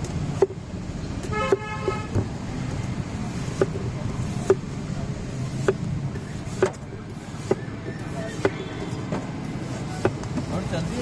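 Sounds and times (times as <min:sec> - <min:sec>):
street traffic noise: 0:00.0 - 0:11.0
knife chopping on cutting board: 0:03.5 - 0:04.7, 0:06.5 - 0:06.8.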